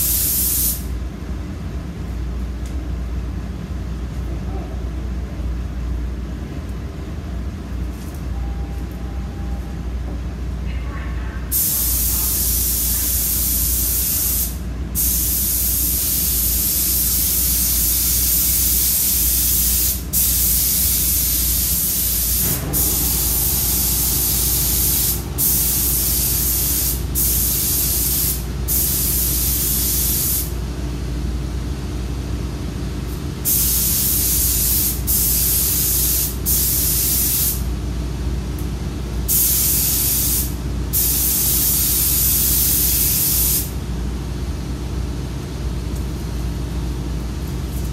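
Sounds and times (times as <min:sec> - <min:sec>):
paint spray gun hissing: 0:00.0 - 0:00.8, 0:11.5 - 0:30.5, 0:33.4 - 0:37.6, 0:39.3 - 0:43.7
steady low hum: 0:00.0 - 0:47.9.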